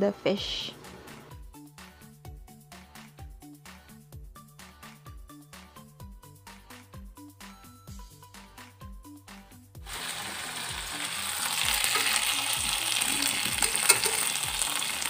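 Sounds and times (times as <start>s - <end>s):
background music with steady beat: 0.0s - 15.0s
tofu sizzling in hot oil: 9.9s - 15.0s.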